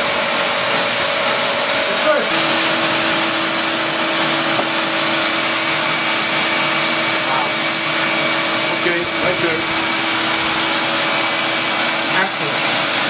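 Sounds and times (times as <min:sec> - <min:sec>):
vacuum running with rushing hum: 0:00.0 - 0:13.0.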